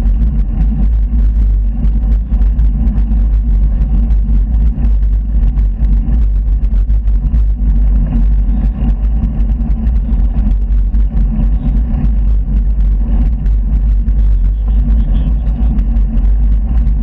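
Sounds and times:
rattly ticks from road: 0.0 - 17.0
wind buffeting microphone: 0.0 - 17.0.

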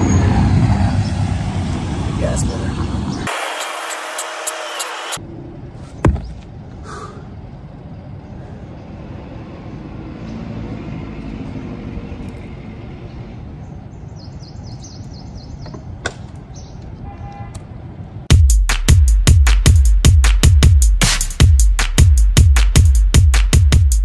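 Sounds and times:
outdoor background noise: 0.0 - 18.4.

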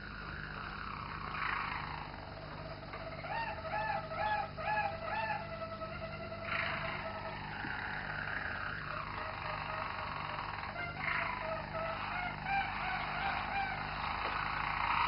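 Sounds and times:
canary singing: 0.0 - 15.0.

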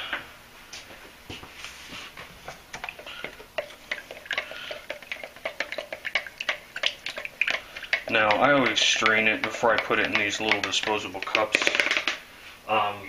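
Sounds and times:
stick scraping plastic cup: 2.2 - 12.2.

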